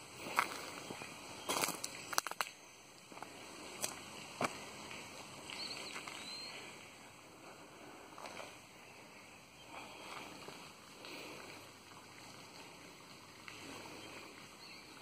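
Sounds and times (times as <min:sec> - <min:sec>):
footsteps on outdoor ground: 0:00.0 - 0:06.8, 0:08.0 - 0:08.7, 0:09.7 - 0:14.5
small bird chirping: 0:05.5 - 0:06.8.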